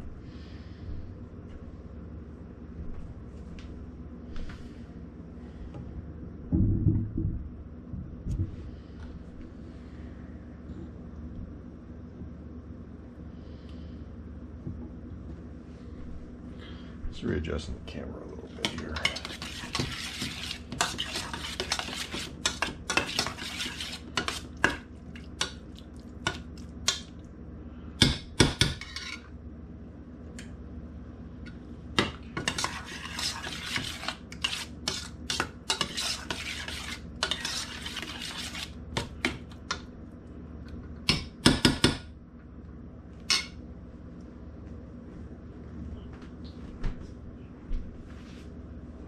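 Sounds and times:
metal spoon scraping saucepan: 18.6 - 24.8, 28.8 - 29.3, 32.4 - 38.8.

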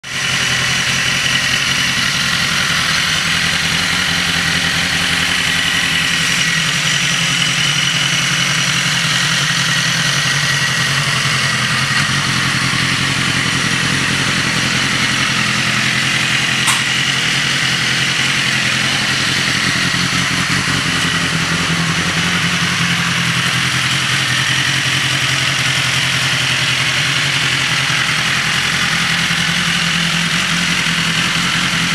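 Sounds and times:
motorcycle engine idling: 0.0 - 31.9
sharp click: 16.6 - 17.0.

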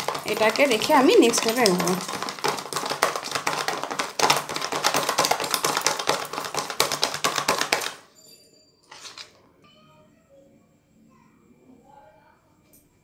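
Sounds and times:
whisk clicking against plastic bowl: 0.0 - 8.0.

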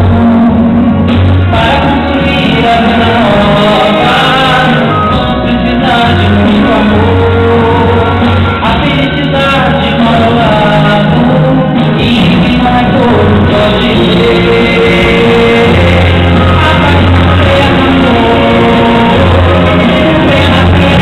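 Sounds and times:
man singing into a microphone: 0.0 - 21.0.

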